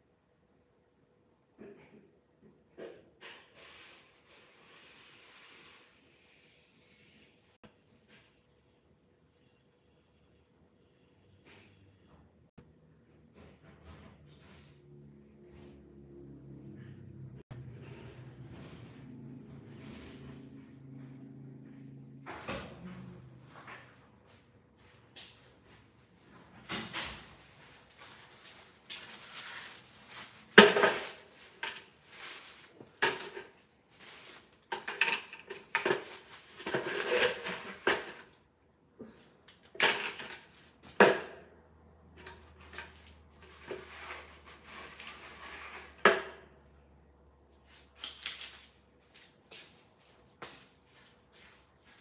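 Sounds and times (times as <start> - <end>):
hard objects clattering and knocking: 30.4 - 38.4
scraping rustles: 42.5 - 46.0.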